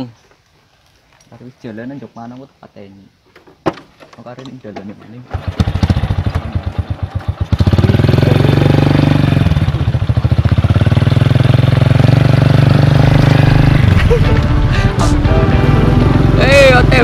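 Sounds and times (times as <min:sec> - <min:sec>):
small motorbike engine: 0:05.3 - 0:14.3.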